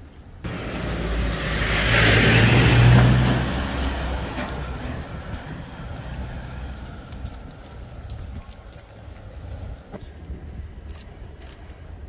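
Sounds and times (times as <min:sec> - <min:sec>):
car driving past: 0:00.5 - 0:07.4.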